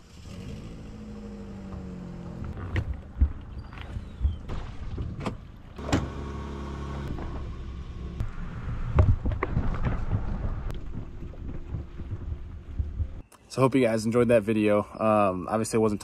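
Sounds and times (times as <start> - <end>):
steady low rumble: 7.1 - 13.2.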